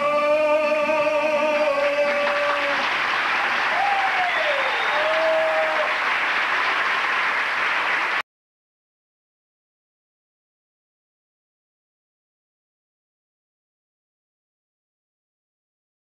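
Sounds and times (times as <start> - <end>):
man singing into a microphone: 0.0 - 2.8
audience applause: 1.7 - 8.2
audience shouts: 2.4 - 6.2.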